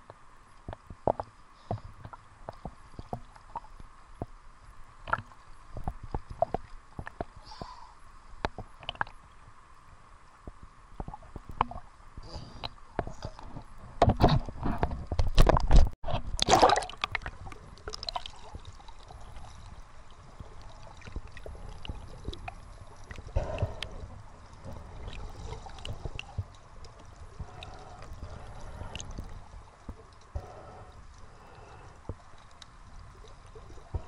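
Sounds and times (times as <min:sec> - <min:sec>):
faint clicks underwater: 0:00.0 - 0:04.4, 0:05.0 - 0:07.8, 0:08.4 - 0:09.4, 0:10.3 - 0:11.8, 0:12.6 - 0:19.8, 0:20.4 - 0:34.0
muffled underwater sloshing: 0:08.5 - 0:34.0
water splashing at surface: 0:15.2 - 0:19.1.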